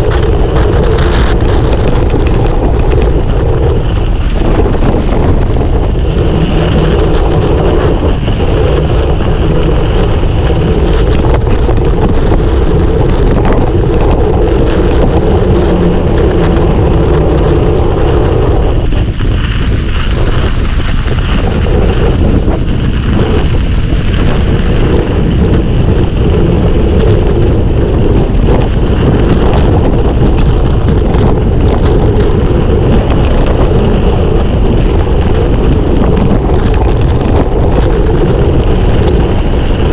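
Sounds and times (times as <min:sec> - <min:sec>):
bike tyres rushing over ground: 0:00.0 - 0:39.9
wind buffeting microphone: 0:00.0 - 0:39.9.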